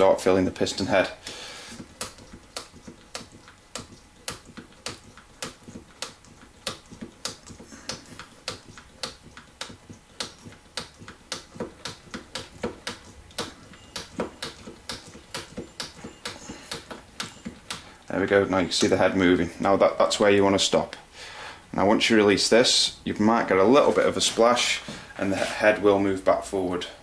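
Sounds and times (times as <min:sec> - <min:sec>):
oil pump clicking: 0:01.7 - 0:18.0.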